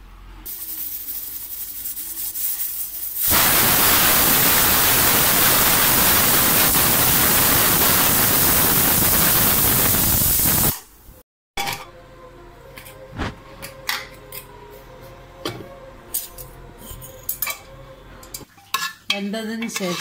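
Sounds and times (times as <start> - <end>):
pressure cooker whistling hiss: 0.4 - 10.8.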